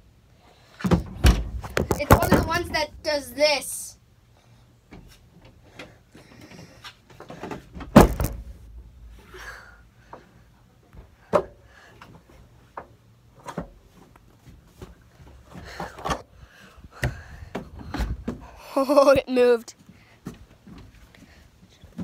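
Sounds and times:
loud thump: 7.9s - 9.5s.

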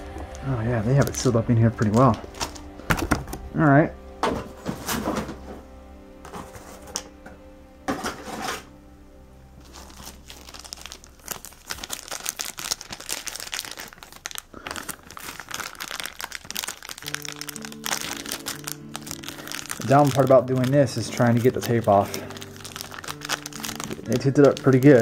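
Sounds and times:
plastic packaging crinkling: 0.0s - 3.5s, 9.6s - 25.0s
background music with held notes: 0.0s - 13.1s, 16.6s - 25.0s.

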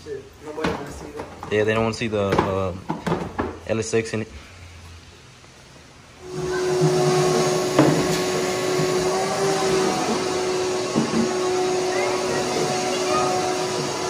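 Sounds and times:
motor whining: 6.2s - 14.0s.

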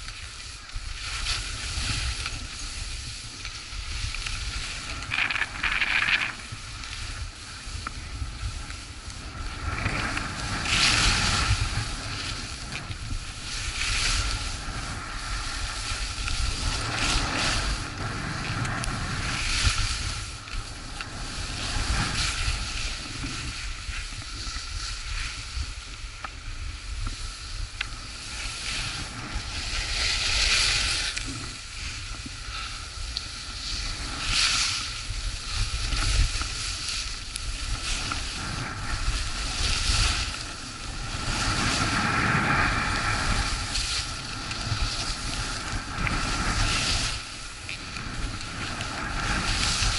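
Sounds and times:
skis scraping over snow: 0.0s - 49.9s
wind buffeting microphone: 0.0s - 49.9s.

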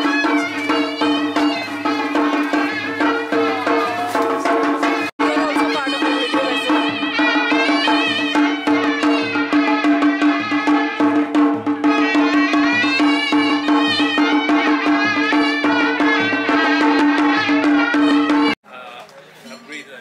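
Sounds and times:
drum beat: 0.0s - 18.6s
reedy wind instrument melody: 0.0s - 18.6s.

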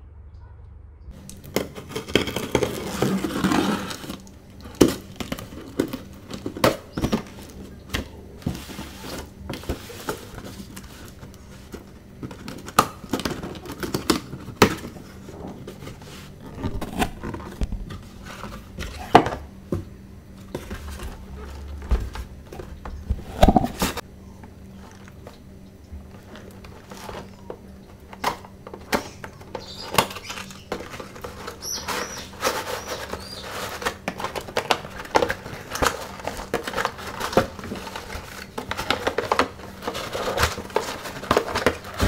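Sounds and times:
knife cutting packing tape: 1.3s - 6.0s
cardboard tearing: 1.3s - 19.2s, 28.1s - 42.0s.

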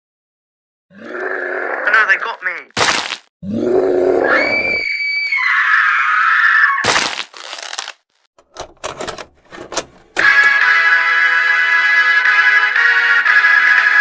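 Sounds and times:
person groaning and screaming: 0.9s - 2.0s
sharp crack: 2.7s - 3.3s, 6.8s - 8.3s.

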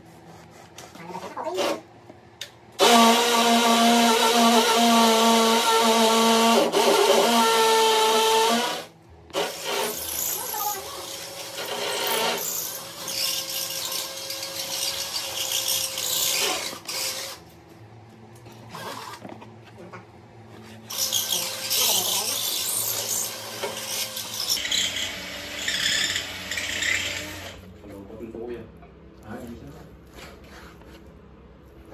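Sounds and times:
electric drill boring into wall: 2.8s - 17.4s, 20.9s - 27.6s.

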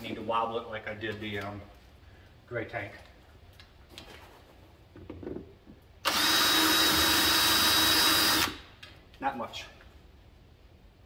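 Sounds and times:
cordless drill running: 6.0s - 8.7s.

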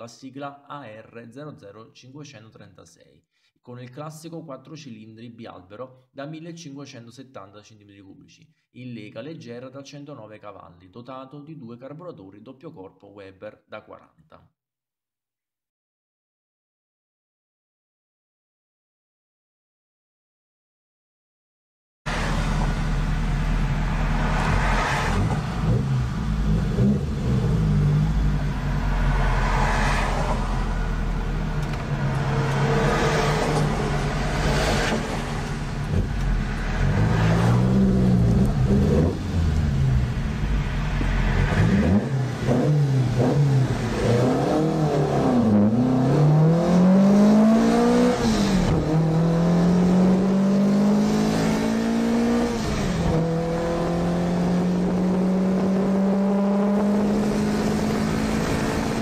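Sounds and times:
car engine accelerating: 22.1s - 59.0s
road and wind rumble: 22.1s - 59.0s.

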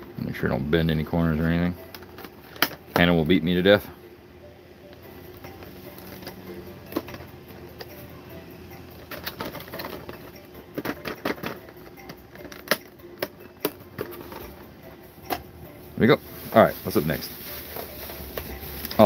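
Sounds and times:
bubble wrap crinkling: 16.0s - 19.0s.

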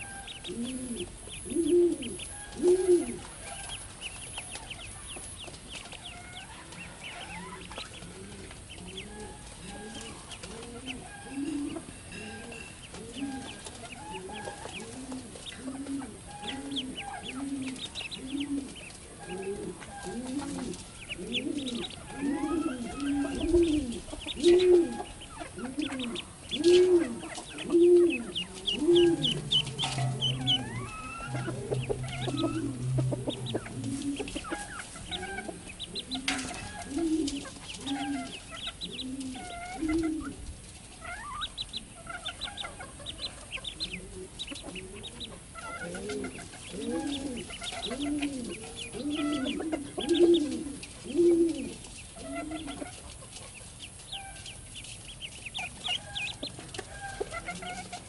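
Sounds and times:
ducklings peeping: 0.0s - 58.0s
low arched bird call: 21.4s - 38.4s.

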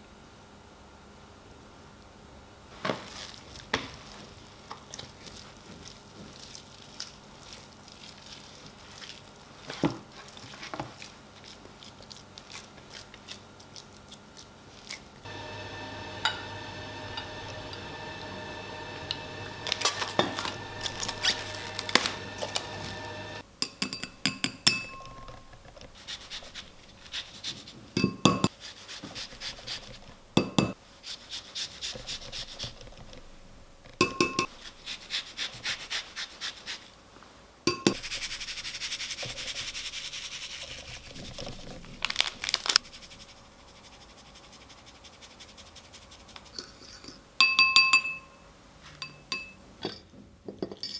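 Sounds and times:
zester grating citrus peel: 14.1s - 23.3s, 25.9s - 27.7s, 34.5s - 36.9s
glass bowl and utensils clinking: 19.6s - 25.7s, 28.0s - 28.5s, 34.0s - 34.5s, 37.7s - 38.1s, 46.7s - 48.4s, 49.0s - 50.9s.

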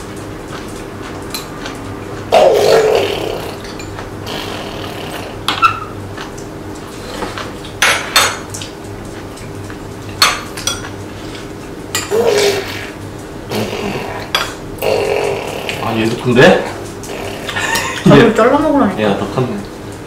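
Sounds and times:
cutlery clinking on ceramic bowls: 10.2s - 11.0s, 14.3s - 14.6s.

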